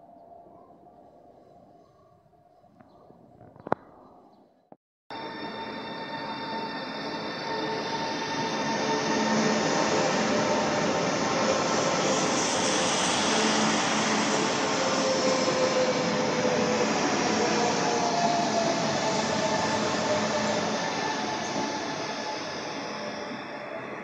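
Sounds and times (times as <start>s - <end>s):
train wheels rushing on rail: 8.3s - 24.0s.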